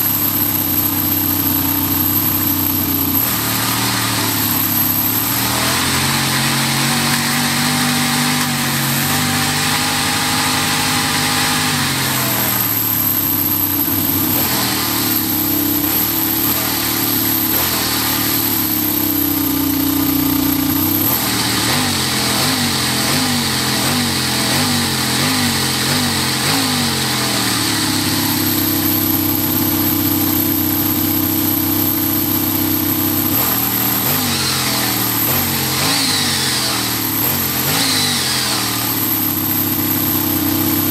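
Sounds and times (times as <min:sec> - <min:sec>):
engine throttle blips: 0:00.0 - 0:40.9
model engine running: 0:00.0 - 0:40.9.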